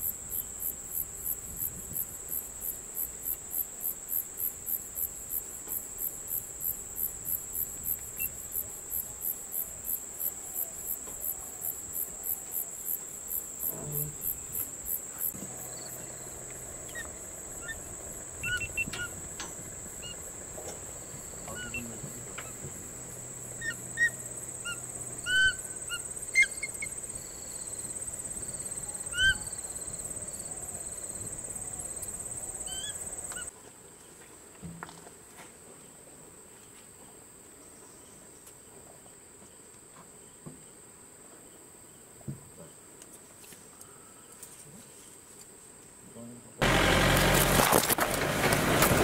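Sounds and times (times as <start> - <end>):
high-pitched insect drone: 6.0 - 33.5
bird chirps: 15.6 - 19.2, 19.9 - 20.3, 21.1 - 22.6, 23.5 - 27.8.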